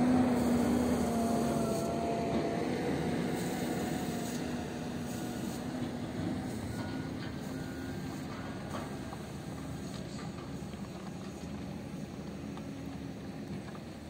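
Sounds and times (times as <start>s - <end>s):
heavy diesel engine droning: 0.0s - 14.0s.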